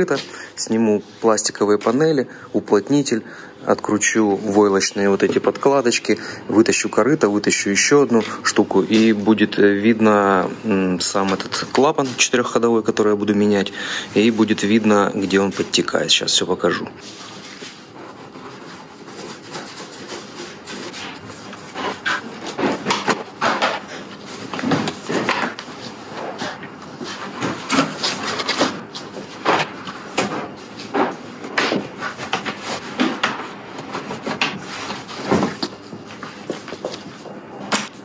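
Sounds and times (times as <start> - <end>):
plastic panels knocking and rubbing: 19.2 - 37.4.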